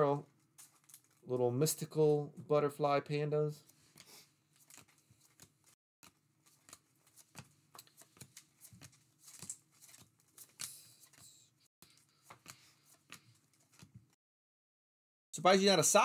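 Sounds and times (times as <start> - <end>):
cards being flicked through: 4.0 - 13.9.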